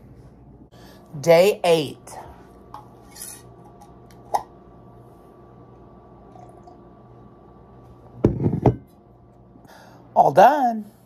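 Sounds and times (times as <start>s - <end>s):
glass jar knocking on table: 8.2s - 8.9s.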